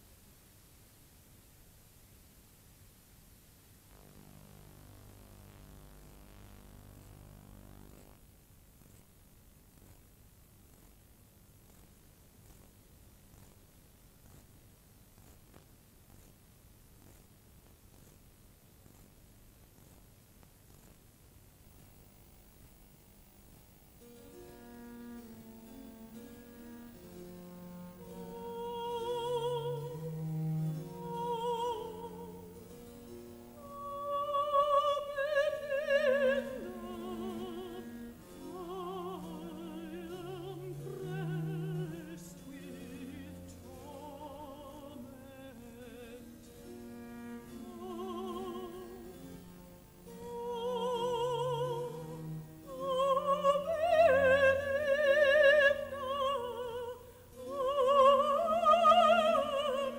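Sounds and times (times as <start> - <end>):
classical string accompaniment: 24.0 - 59.9
operatic singing with vibrato: 28.0 - 32.6, 33.6 - 46.3, 50.1 - 59.9.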